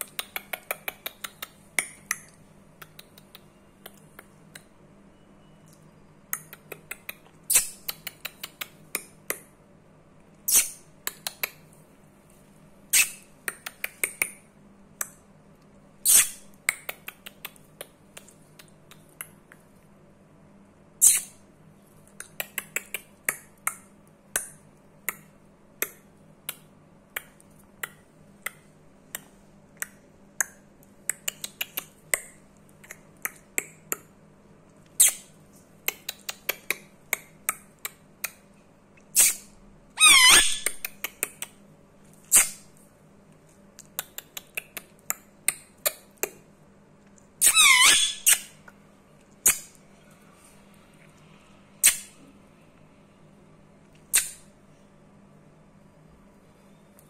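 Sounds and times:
parakeet shrill calls: 0:40.0 - 0:40.8, 0:47.4 - 0:48.5
parakeet wavering screech: 0:40.0 - 0:40.8, 0:47.4 - 0:48.5.

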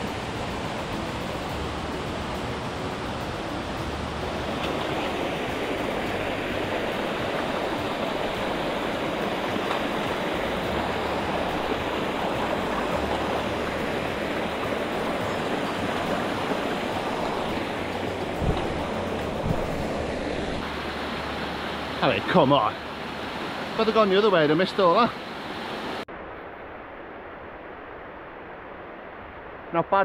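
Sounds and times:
stream rushing over rocks: 0:00.0 - 0:26.1
short knocks: 0:18.2 - 0:20.1.

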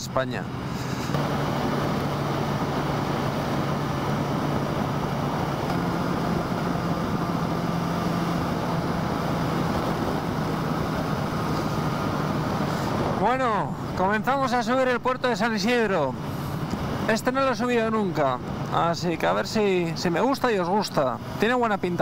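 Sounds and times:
wind and road noise: 0:00.0 - 0:22.0
motorcycle engine running: 0:00.9 - 0:13.2.

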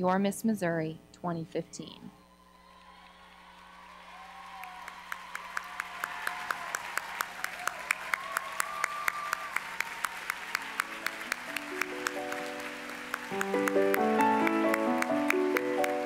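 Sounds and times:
audience applauding: 0:02.5 - 0:16.0
sharp close hand clapping: 0:04.5 - 0:16.0
music: 0:10.0 - 0:16.0.

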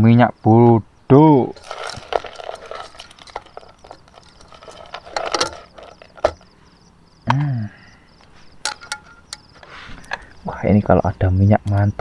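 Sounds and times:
faint insect chirp: 0:00.0 - 0:12.0
hand squeezing noodles in pot: 0:01.6 - 0:06.4.

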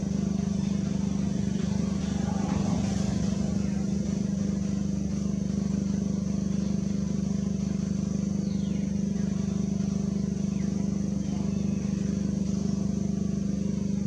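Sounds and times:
low motor hum with flutter: 0:00.0 - 0:14.0.

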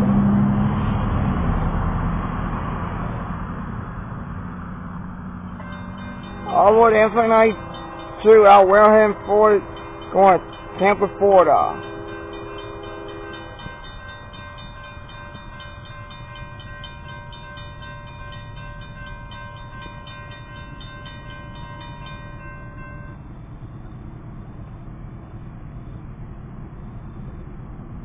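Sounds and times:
railroad crossing bell ringing: 0:05.2 - 0:24.4.

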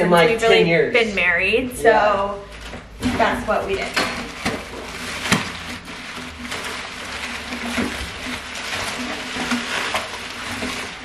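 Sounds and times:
bubble wrap crinkling: 0:02.3 - 0:11.0
crackles: 0:02.4 - 0:11.0.

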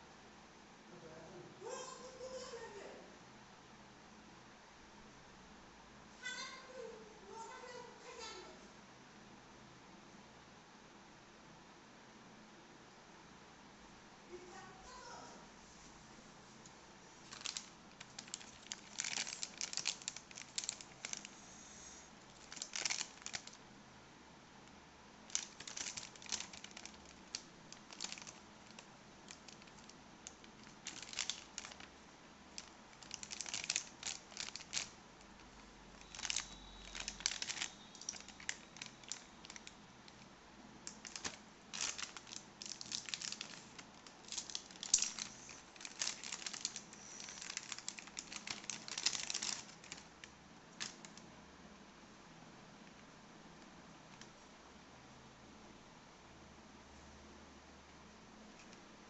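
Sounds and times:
plastic bag crinkling: 0:17.2 - 0:23.6, 0:25.3 - 0:40.2, 0:40.9 - 0:51.2.

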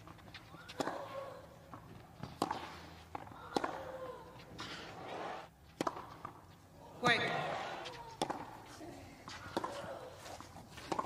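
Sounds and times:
tennis ball struck with rackets: 0:00.6 - 0:04.2, 0:05.8 - 0:06.4, 0:07.0 - 0:08.6, 0:09.3 - 0:09.9.

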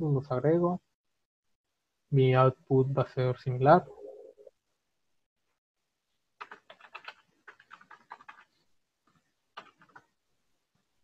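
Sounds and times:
faint computer keyboard typing: 0:06.4 - 0:10.2.

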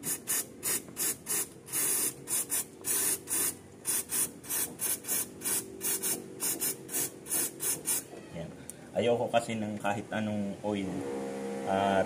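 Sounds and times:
aerosol spray can hissing: 0:00.0 - 0:08.1.

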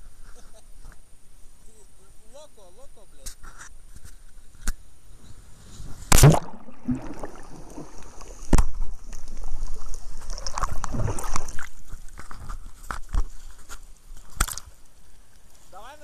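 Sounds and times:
underwater bubbling and churning: 0:05.8 - 0:13.4
loud splash into water: 0:06.0 - 0:09.1.

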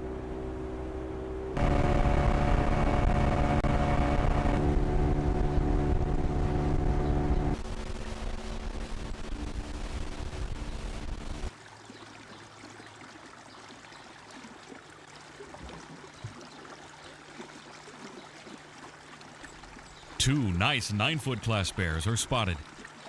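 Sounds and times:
boat motor running: 0:00.0 - 0:11.5.

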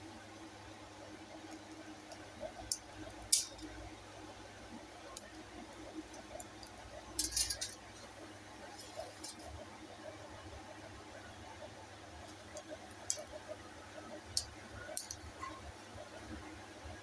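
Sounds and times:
low steady hum: 0:00.0 - 0:17.0
utensils clinking against bowl: 0:07.2 - 0:07.8.

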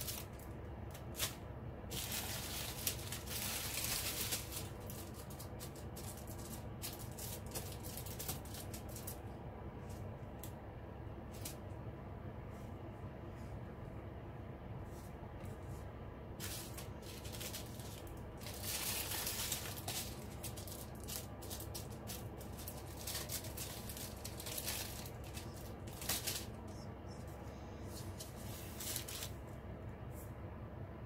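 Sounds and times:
plastic bags crinkling: 0:00.0 - 0:09.2, 0:16.4 - 0:26.8, 0:28.0 - 0:29.4
small beads rattling in bags: 0:01.1 - 0:09.2, 0:16.4 - 0:26.6.

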